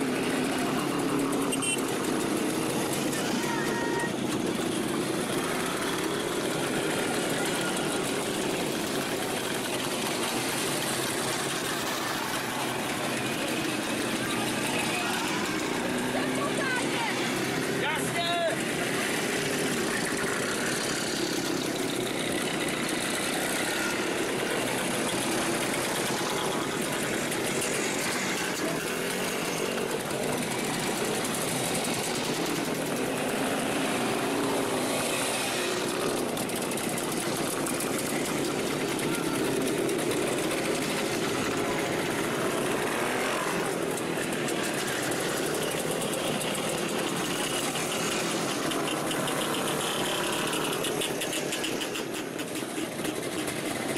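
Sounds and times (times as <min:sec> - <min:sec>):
two-stroke motorcycles riding past: 0:00.0 - 0:53.9.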